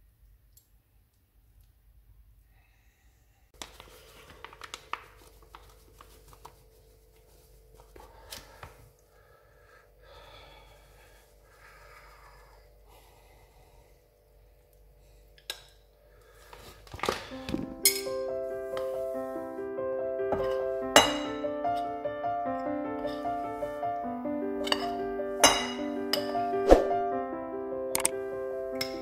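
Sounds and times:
flour rustling through mesh sieve: 3.6s - 8.6s, 18.4s - 19.6s.

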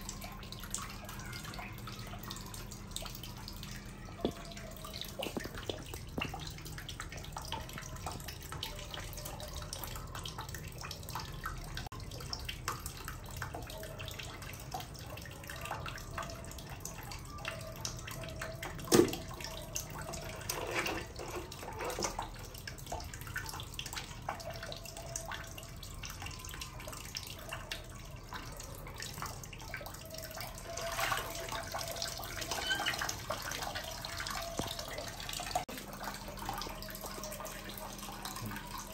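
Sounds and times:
water dripping: 0.0s - 38.9s
water splashing in tub: 0.1s - 9.0s, 18.0s - 38.9s.

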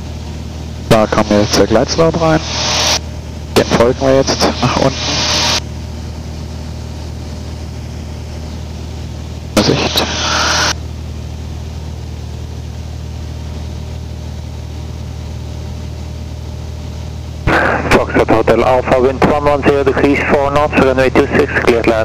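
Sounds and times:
aircraft engine and propeller drone: 0.0s - 22.0s
loud burst of noise: 1.1s - 5.7s, 9.6s - 10.8s, 17.4s - 18.4s.

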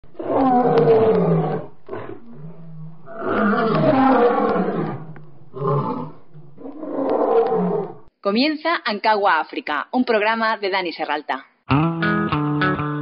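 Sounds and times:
lion roaring: 0.0s - 8.1s.

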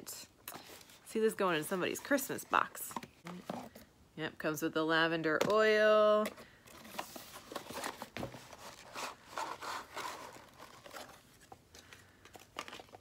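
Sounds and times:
packaging rustling and scraping: 6.7s - 13.0s.

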